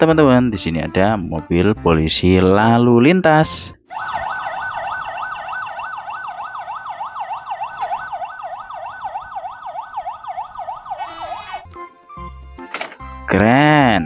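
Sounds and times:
toy police siren yelping: 3.9 - 11.6.

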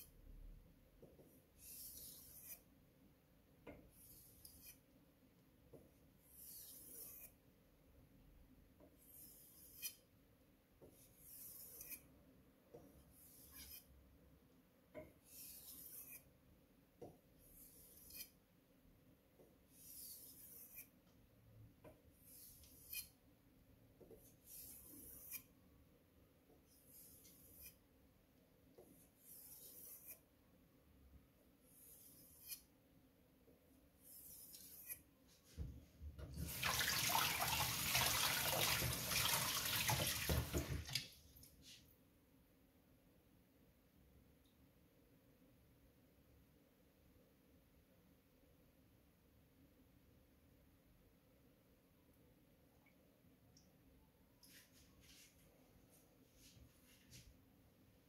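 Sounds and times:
knife stroking a whetstone: 1.3 - 2.7, 3.8 - 4.9, 6.2 - 7.5, 8.9 - 10.1, 10.8 - 12.1, 12.9 - 14.0, 15.2 - 16.4, 17.4 - 18.4, 19.7 - 21.0, 22.2 - 23.2, 24.1 - 25.6, 26.6 - 27.8, 28.8 - 30.3, 31.7 - 32.7, 34.0 - 35.6
tap water running: 36.3 - 41.1.

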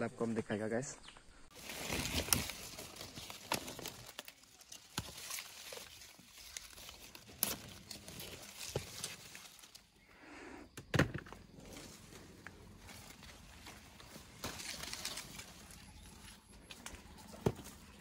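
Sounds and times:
leaves and twigs rustling: 1.0 - 10.2, 10.8 - 18.0
twigs snapping: 1.6 - 10.0, 12.4 - 18.0.

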